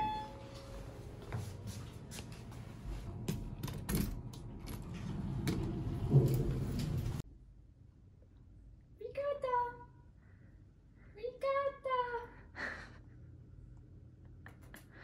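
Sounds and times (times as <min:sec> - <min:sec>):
elevator low rumble: 0:00.0 - 0:07.2.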